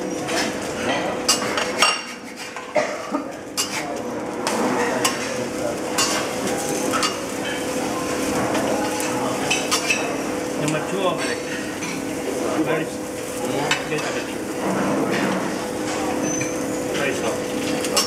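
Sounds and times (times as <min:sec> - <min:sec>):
eggs sizzling on a griddle: 0:00.0 - 0:18.0.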